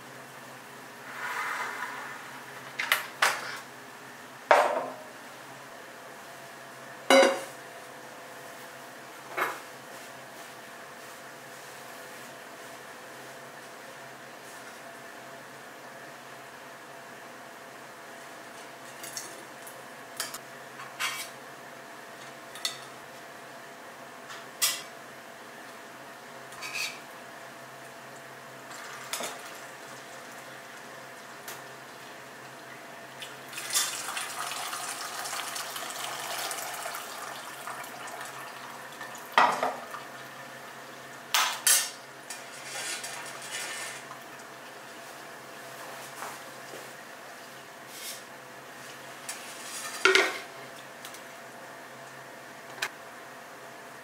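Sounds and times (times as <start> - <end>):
beer pouring and splashing: 28.7 - 30.4, 33.2 - 40.4.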